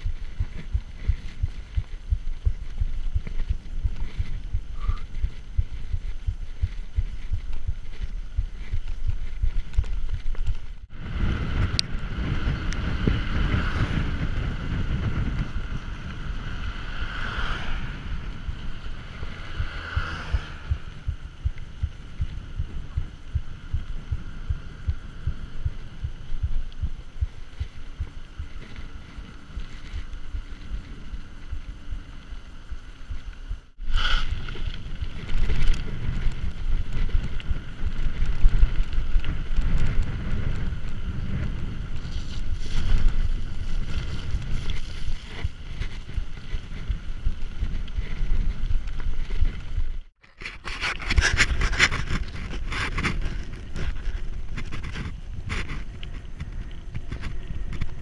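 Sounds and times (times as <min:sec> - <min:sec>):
bike tyres rumbling and rattling: 0:00.0 - 0:58.0
wind buffeting microphone: 0:00.0 - 0:58.0.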